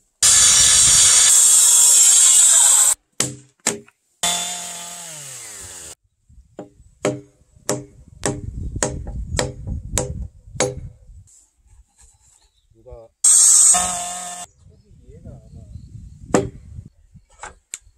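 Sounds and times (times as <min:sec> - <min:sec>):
circular saw cutting wood: 0:00.2 - 0:03.0, 0:04.2 - 0:06.0, 0:13.3 - 0:14.5.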